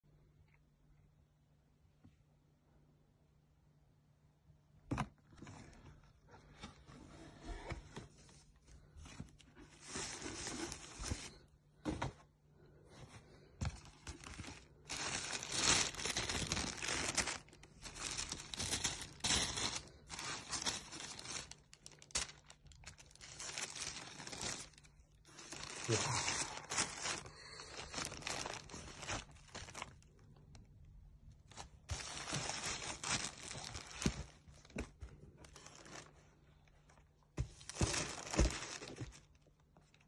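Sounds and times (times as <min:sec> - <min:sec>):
tissue paper crinkling: 0:08.8 - 0:11.4, 0:13.6 - 0:30.4, 0:31.4 - 0:36.3, 0:37.6 - 0:40.0.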